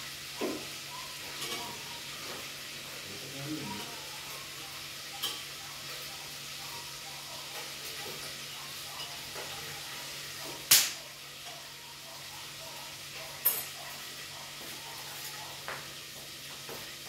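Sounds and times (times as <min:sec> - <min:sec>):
food sizzling in a pan: 0:00.0 - 0:17.0
kitchenware clinking: 0:00.3 - 0:02.8, 0:03.6 - 0:10.7, 0:11.3 - 0:14.4.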